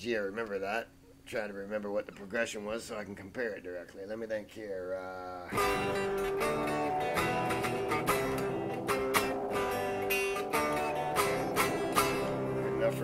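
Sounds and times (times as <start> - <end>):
electric guitar strumming chords: 5.5 - 13.0.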